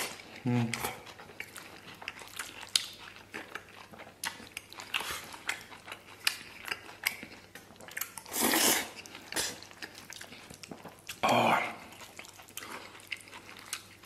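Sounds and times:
wet chewing and lip smacks: 0.0s - 14.0s
noisy slurp: 7.9s - 13.6s.

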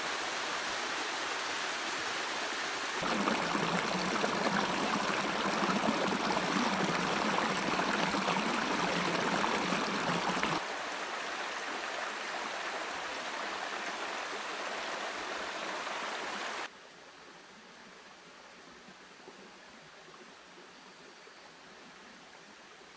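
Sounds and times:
stream rushing over rocks: 0.0s - 16.7s.

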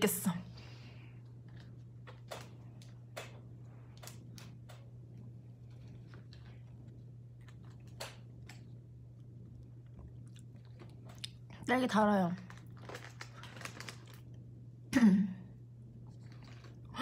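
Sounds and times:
steady low hum: 0.0s - 17.0s
person chewing food: 4.0s - 11.6s, 16.0s - 17.0s.

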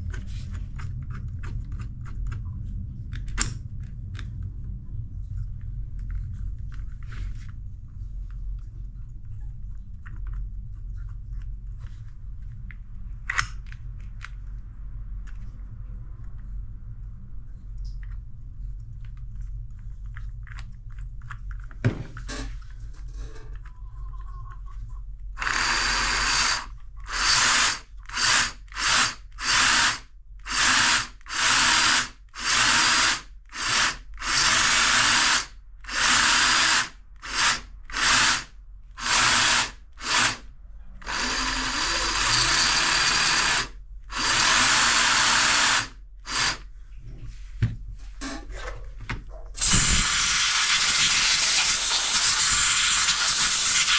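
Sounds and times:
jigsaw motor running: 25.4s - 40.4s, 41.0s - 46.6s.

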